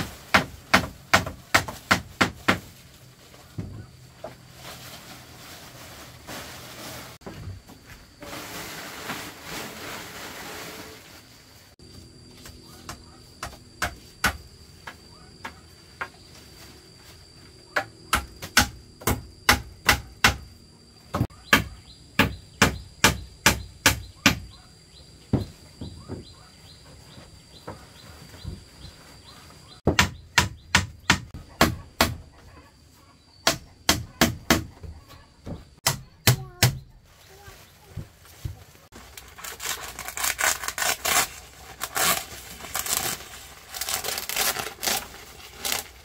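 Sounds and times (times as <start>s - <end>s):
hand tool chopping wood: 0.2s - 2.7s, 17.8s - 20.4s, 29.9s - 32.2s.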